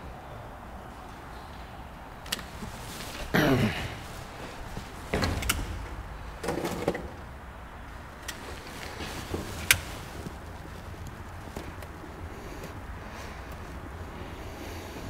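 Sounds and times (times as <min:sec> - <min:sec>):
steel grill creaking and scraping: 0:02.3 - 0:11.8.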